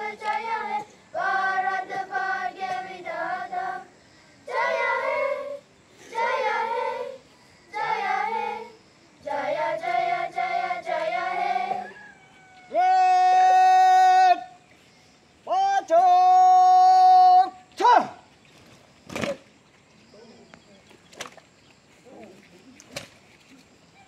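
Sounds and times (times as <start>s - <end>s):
children singing together: 0.0s - 11.9s.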